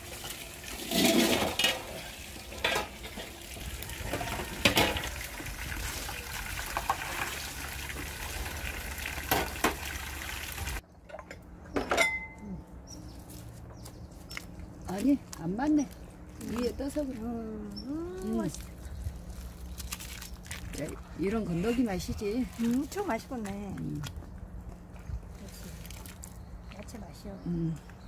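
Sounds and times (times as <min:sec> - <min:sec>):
metal bowls clattering in basin: 0:00.0 - 0:06.0, 0:11.1 - 0:12.4
water pouring: 0:00.0 - 0:10.8.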